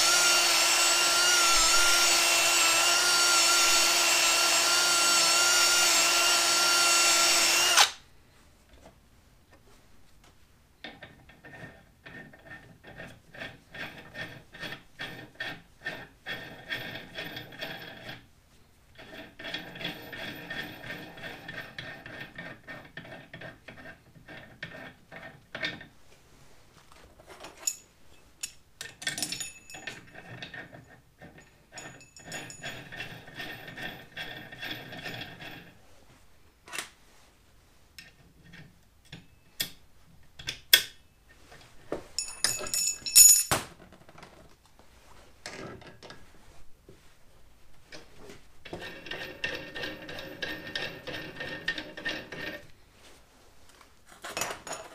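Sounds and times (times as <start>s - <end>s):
metal parts clicking and knocking: 27.4s - 35.4s, 42.2s - 44.0s, 54.2s - 54.9s
sharp metal clinks: 42.2s - 43.5s
nut rasping along bolt threads: 48.7s - 52.7s.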